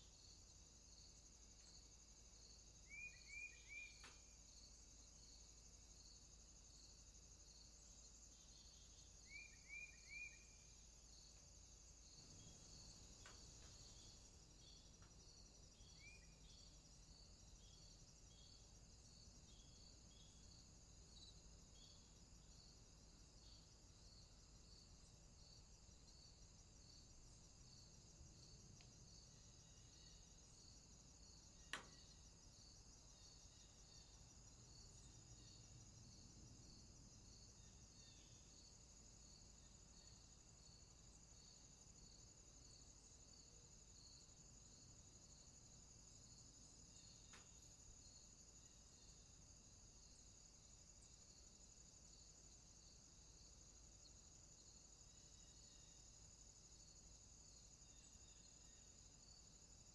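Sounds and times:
insect chirring: 0:00.0 - 0:59.9
pulsing insect chirp: 0:00.0 - 0:59.9
bird chirps: 0:02.9 - 0:04.2, 0:09.3 - 0:10.5.

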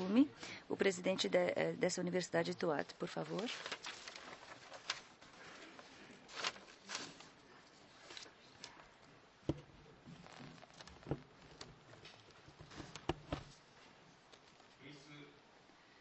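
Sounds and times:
knocks and clicks on microphones: 0:09.5 - 0:09.7, 0:10.9 - 0:13.5.

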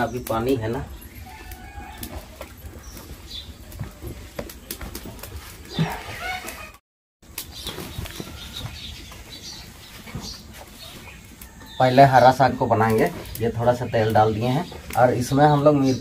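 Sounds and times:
bird calls: 0:07.4 - 0:16.0.

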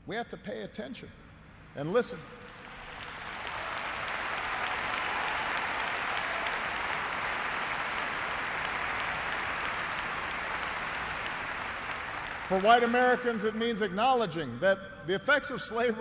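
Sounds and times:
large audience applauding: 0:02.5 - 0:13.2.

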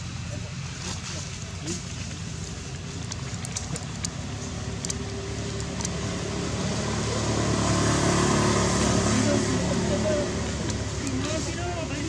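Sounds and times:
low engine hum: 0:00.0 - 0:12.0
faint clicks: 0:02.7 - 0:06.0.

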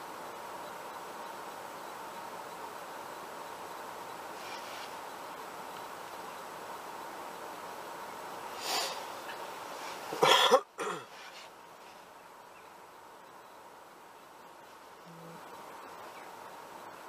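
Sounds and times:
breath-like puff: 0:08.6 - 0:09.0
person coughing: 0:10.2 - 0:11.1.

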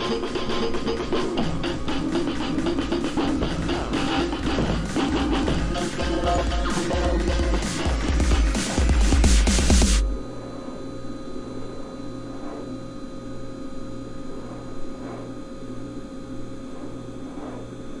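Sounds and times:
heavy rock music: 0:00.0 - 0:10.2
throbbing electrical hum: 0:00.0 - 0:18.0.

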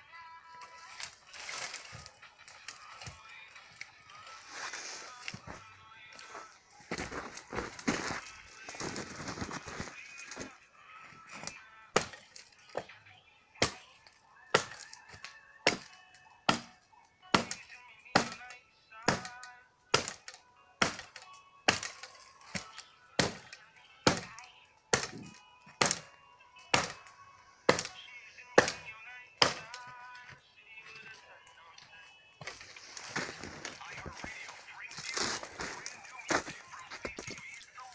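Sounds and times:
hatchet chopping wood: 0:11.9 - 0:12.9, 0:13.6 - 0:27.1, 0:27.7 - 0:28.0, 0:28.6 - 0:29.9.

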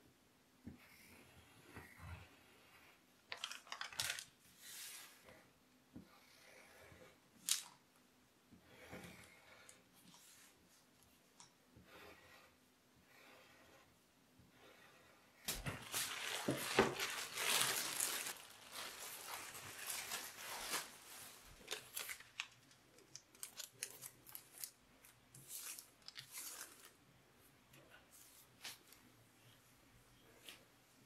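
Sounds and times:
thin paper rustling: 0:03.3 - 0:05.0, 0:15.5 - 0:24.8.

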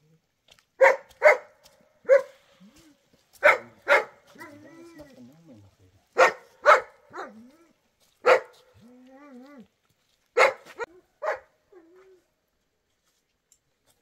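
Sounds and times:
dog barking: 0:00.8 - 0:02.4, 0:03.4 - 0:04.7, 0:06.1 - 0:07.4, 0:08.2 - 0:08.7, 0:10.4 - 0:11.6.

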